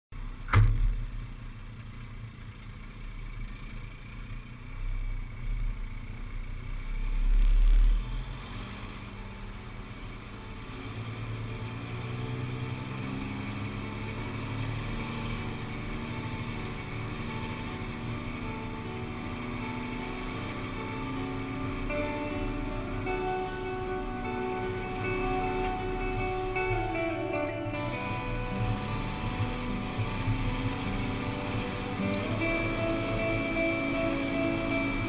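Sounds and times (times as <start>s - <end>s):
truck engine running: 0.1s - 35.0s
sharp knock: 0.5s - 1.2s.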